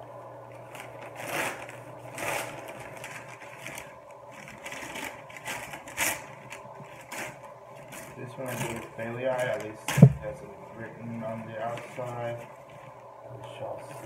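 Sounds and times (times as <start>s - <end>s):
faint steady hum: 0.0s - 14.0s
newspaper crinkling: 0.5s - 9.9s, 11.2s - 13.0s.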